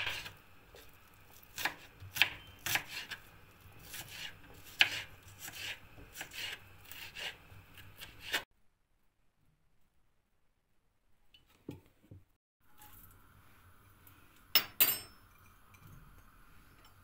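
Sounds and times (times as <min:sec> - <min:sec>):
knife chopping onion on board: 0:00.0 - 0:08.4.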